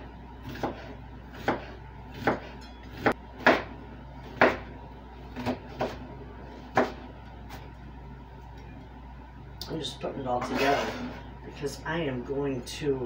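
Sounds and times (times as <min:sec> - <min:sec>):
knife chopping on cutting board: 0:00.4 - 0:03.7, 0:04.3 - 0:04.7, 0:05.4 - 0:06.0, 0:06.7 - 0:07.0.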